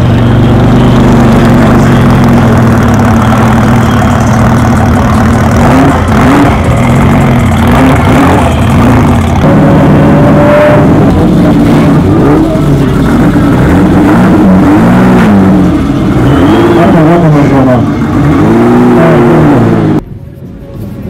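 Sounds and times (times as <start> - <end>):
engine revs: 0.0 - 20.0
car engines idling: 0.0 - 21.0.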